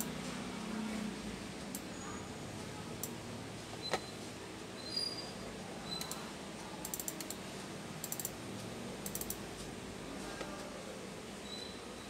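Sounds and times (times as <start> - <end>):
computer keyboard typing: 5.9 - 7.4, 8.0 - 8.4, 9.0 - 9.4.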